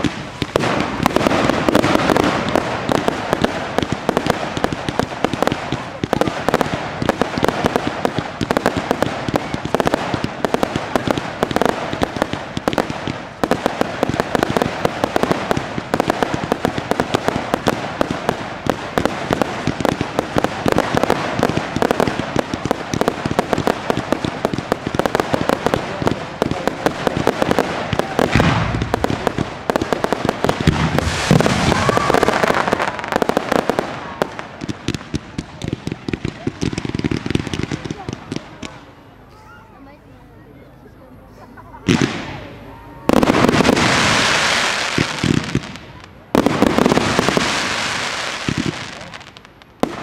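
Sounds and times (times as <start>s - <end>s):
fireworks crackling and banging: 0.0s - 40.2s, 41.2s - 50.0s.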